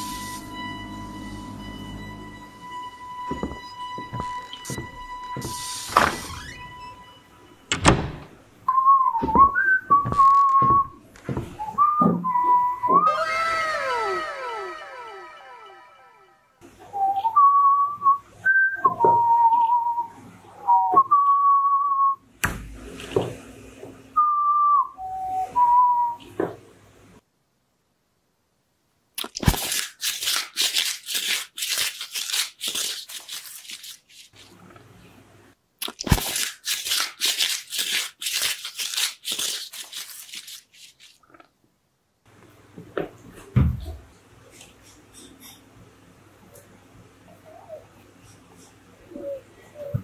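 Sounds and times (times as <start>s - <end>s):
person whistling a tune: 8.7s - 11.0s, 11.6s - 13.1s, 16.9s - 22.2s, 24.2s - 26.2s
paper crinkling and rustling: 10.0s - 10.6s, 29.2s - 34.6s, 35.8s - 41.2s.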